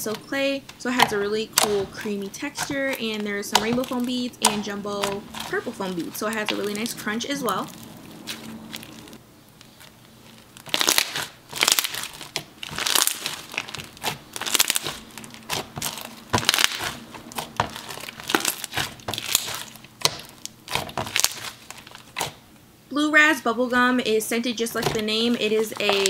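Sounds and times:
foam bead slime crunching and popping: 1.6 - 22.4.

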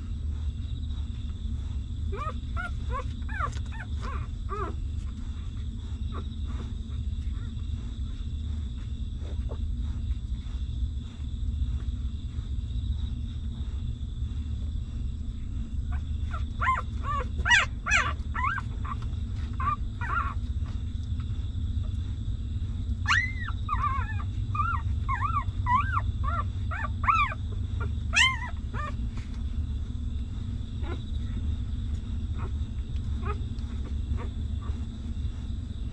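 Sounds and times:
low rumble: 0.0 - 35.9
puppies whimpering and squealing: 0.0 - 35.9.

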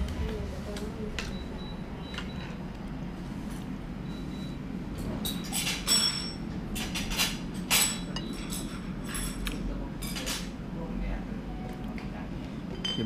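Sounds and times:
steady low hum: 0.0 - 13.0
crockery clinking: 5.2 - 10.5, 12.7 - 13.0.

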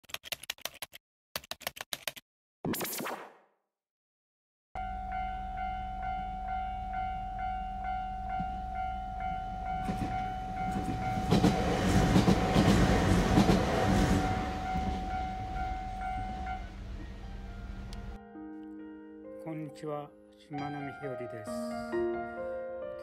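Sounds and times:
level crossing alarm bell: 4.8 - 12.5, 14.1 - 16.9
train rumble and wheel clatter: 8.2 - 18.2.

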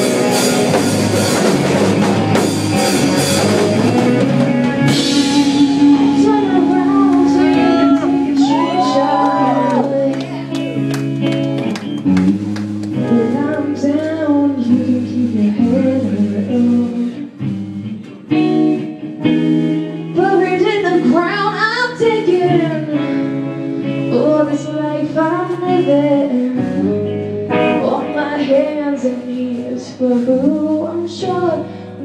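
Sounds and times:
live band playing: 0.0 - 32.0
person singing: 4.2 - 11.0, 12.9 - 17.4.

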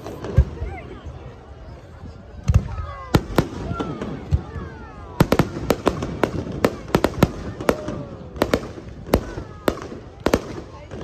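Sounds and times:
fireworks bangs: 2.4 - 11.0.

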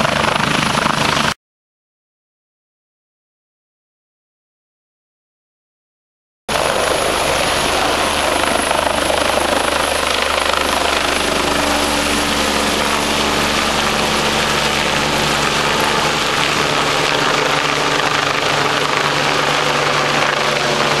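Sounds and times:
helicopter rotor and turbine: 0.0 - 1.4, 6.5 - 21.0
high turbine whine: 6.5 - 21.0.

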